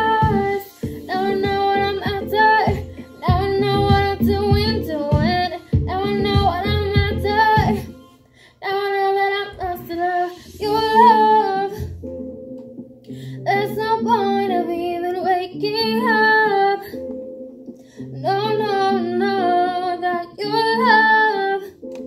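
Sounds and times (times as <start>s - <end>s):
backing track with a beat: 0.0s - 8.0s, 9.6s - 13.2s
woman singing into a microphone: 0.0s - 12.0s, 13.4s - 17.2s, 18.0s - 21.9s.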